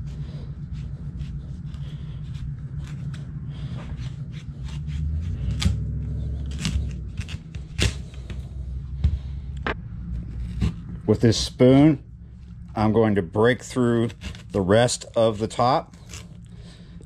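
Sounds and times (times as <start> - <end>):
steady low hum: 0.0 - 17.0
knife crunching through squash rind: 0.8 - 8.5, 10.2 - 11.0, 14.0 - 16.4.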